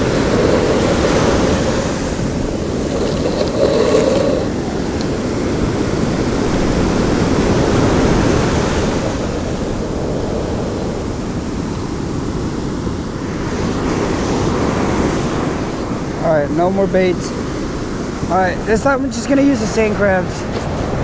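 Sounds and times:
ocean surf rushing: 0:00.0 - 0:21.0
wind on microphone: 0:00.0 - 0:21.0.

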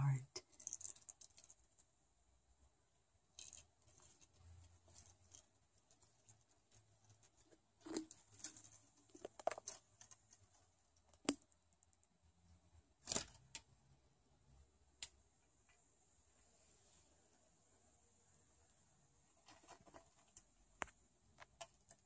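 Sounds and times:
small metal bell jingling: 0:03.4 - 0:09.8.

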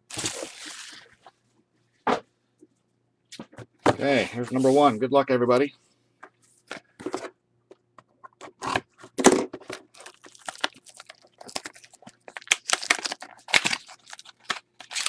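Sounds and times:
cardboard ripping and crinkling: 0:00.1 - 0:01.1, 0:09.9 - 0:15.0.

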